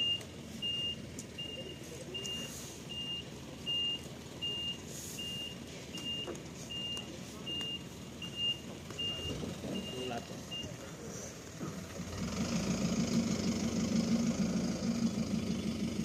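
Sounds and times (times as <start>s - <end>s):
reversing alarm beeping: 0.0s - 10.8s.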